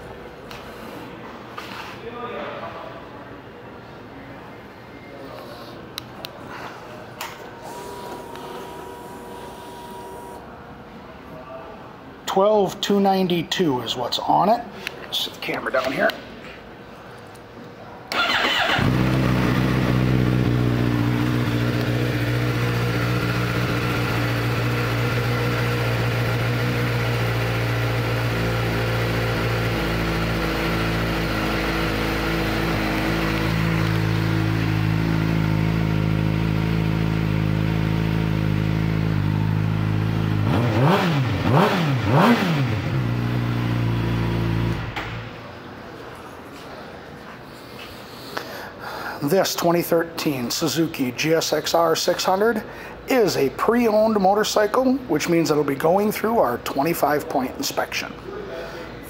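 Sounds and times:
motorcycle engine starting and idling: 18.1s - 45.6s
motorcycle engine revving: 18.2s - 45.3s.

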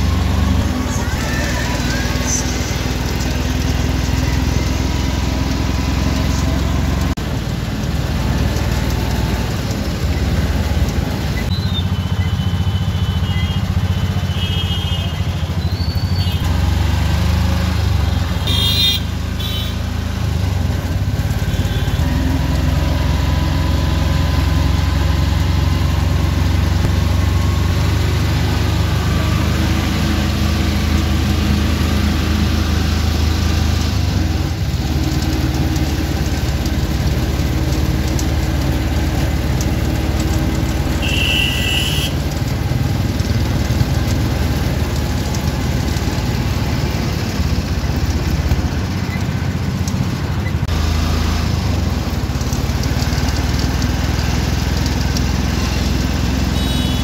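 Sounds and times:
three-wheeler engine droning: 0.0s - 57.0s
traffic horns honking: 11.5s - 16.5s, 18.0s - 20.0s, 21.2s - 22.4s, 40.8s - 42.5s, 55.6s - 57.0s.

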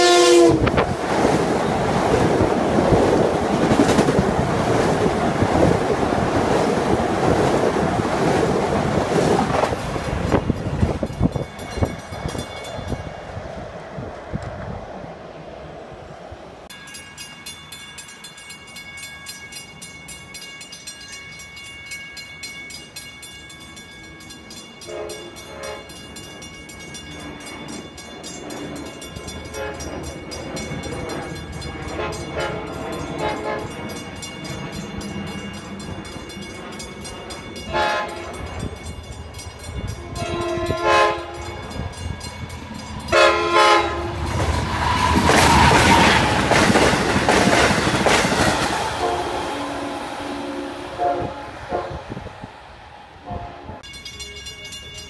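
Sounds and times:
train horn blasts: 0.0s - 0.9s, 24.8s - 26.0s, 29.5s - 30.0s, 31.9s - 33.8s, 37.7s - 38.4s, 39.9s - 41.7s, 43.1s - 44.2s, 49.0s - 52.4s, 53.2s - 53.8s
train wheel and rail noise: 0.0s - 55.0s
crossing bell dinging: 9.9s - 13.4s, 16.7s - 52.4s, 53.5s - 55.0s.

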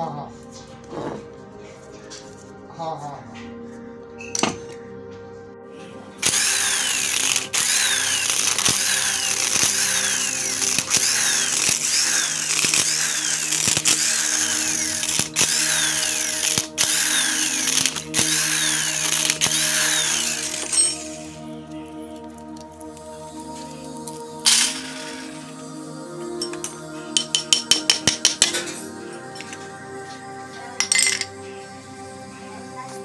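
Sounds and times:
electric impact wrench running: 6.2s - 21.4s, 24.4s - 25.4s.

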